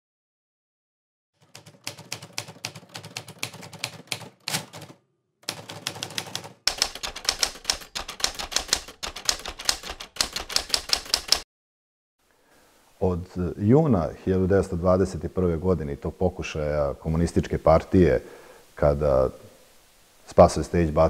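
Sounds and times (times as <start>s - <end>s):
typewriter keys striking: 1.4s - 11.4s.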